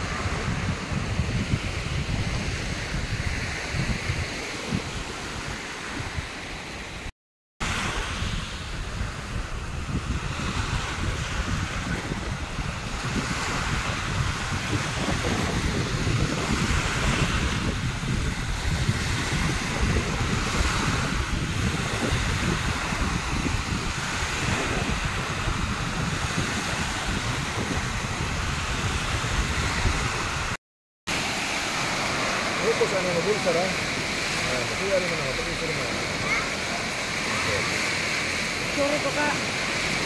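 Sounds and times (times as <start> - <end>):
wind buffeting microphone: 0.0 - 30.6
small waves breaking on shore: 0.0 - 40.0.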